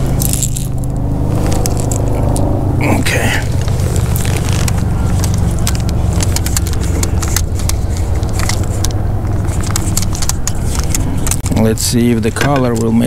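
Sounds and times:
small irregular clicks and rattles: 0:03.6 - 0:11.6.

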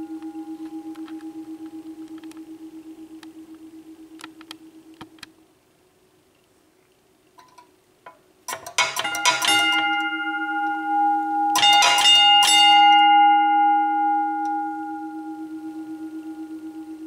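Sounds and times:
low wavering hum: 0:00.0 - 0:05.6, 0:08.8 - 0:17.0
level crossing bell ringing: 0:08.5 - 0:17.0.

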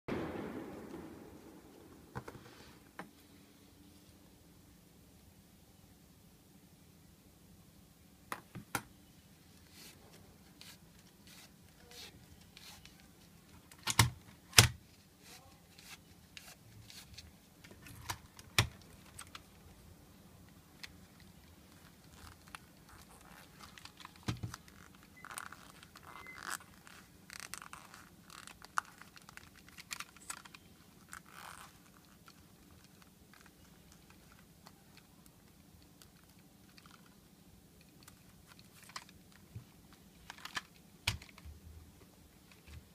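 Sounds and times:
ear pad scraping and rubbing: 0:09.6 - 0:13.1, 0:21.7 - 0:29.2, 0:30.2 - 0:32.5.

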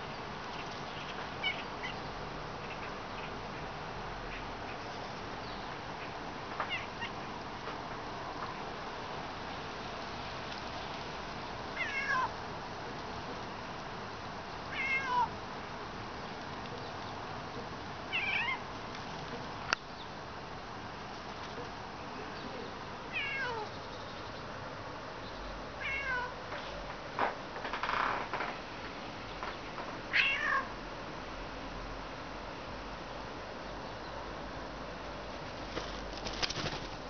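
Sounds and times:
bird mimicking cat meow: 0:06.7 - 0:07.2, 0:14.7 - 0:15.3, 0:18.1 - 0:18.6, 0:23.1 - 0:23.7, 0:30.1 - 0:30.7.

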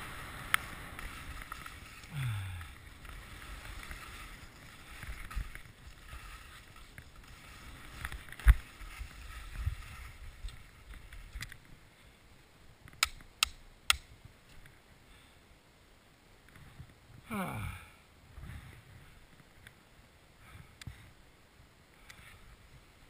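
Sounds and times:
skis scraping over snow: 0:00.0 - 0:11.8
sharp clicks: 0:12.9 - 0:14.1.

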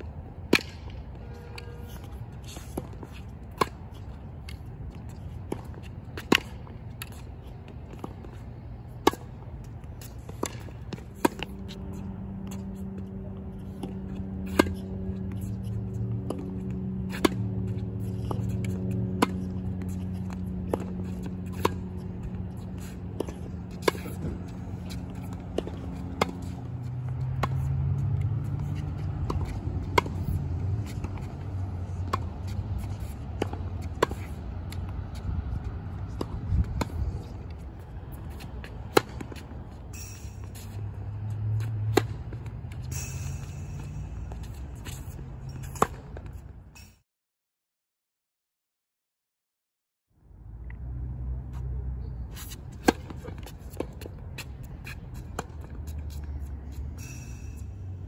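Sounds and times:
tennis ball struck by racket: 0:00.4 - 0:01.0, 0:05.4 - 0:09.4, 0:10.0 - 0:46.3, 0:52.4 - 0:56.2.

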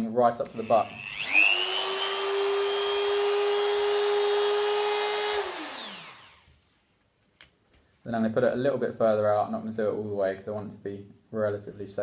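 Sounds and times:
rotary tool whine: 0:00.4 - 0:06.5.

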